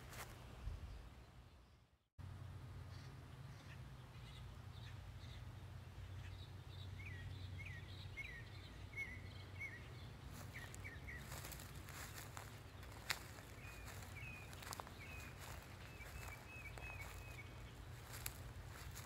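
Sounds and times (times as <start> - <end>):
footsteps on grass: 0.0 - 0.4, 10.2 - 19.0
low background hum: 0.2 - 19.0
bird chirping: 2.9 - 19.0.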